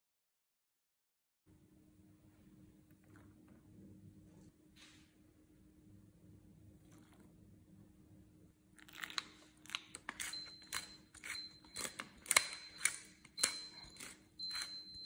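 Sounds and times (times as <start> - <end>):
pepper mill grinding: 8.8 - 15.0.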